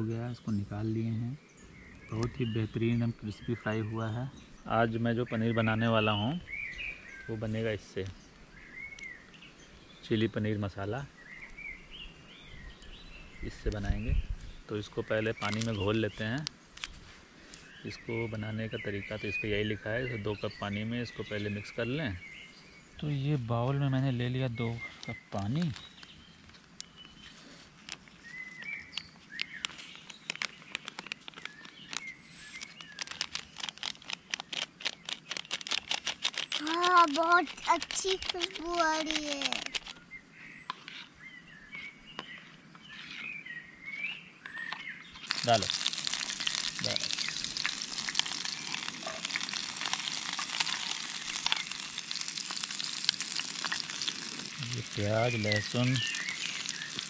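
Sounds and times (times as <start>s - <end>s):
birds chirping: 0.0s - 57.0s
onion and garlic frying in oil: 45.2s - 57.0s.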